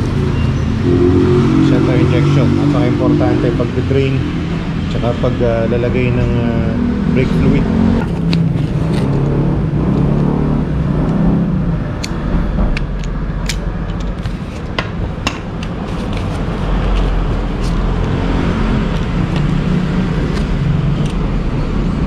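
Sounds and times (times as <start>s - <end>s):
vehicle engine rumbling: 0.0s - 22.0s
metal parts clicking: 12.0s - 14.8s.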